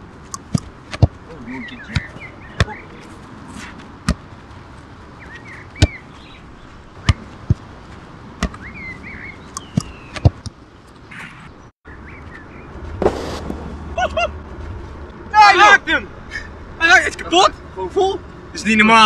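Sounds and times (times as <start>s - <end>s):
foot kicking soccer ball: 7.0s - 8.6s.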